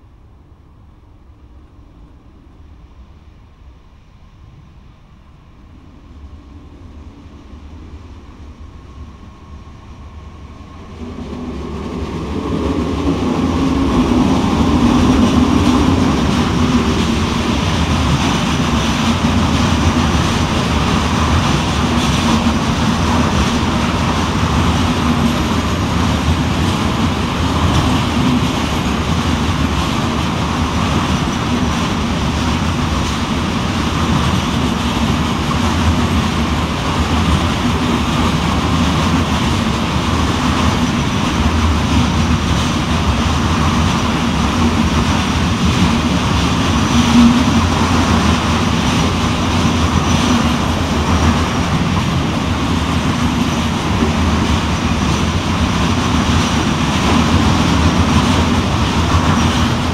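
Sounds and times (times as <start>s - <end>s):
freight train wheels rumbling on rail: 0.0s - 59.9s.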